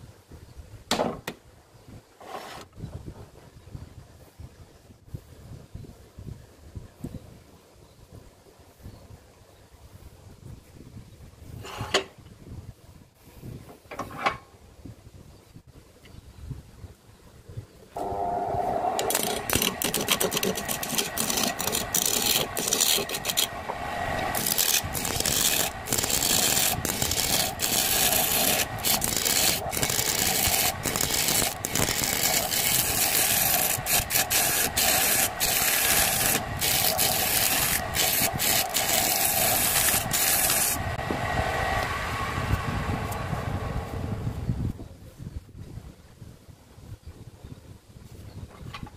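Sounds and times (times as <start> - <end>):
chisel scraping spinning wood: 18.0 - 41.0
wood lathe humming: 18.0 - 43.3.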